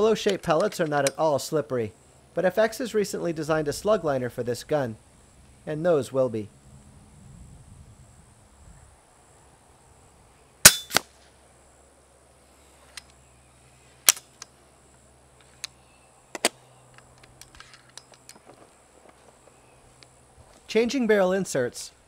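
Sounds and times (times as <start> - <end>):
air rifle shot crack: 10.6 - 11.2.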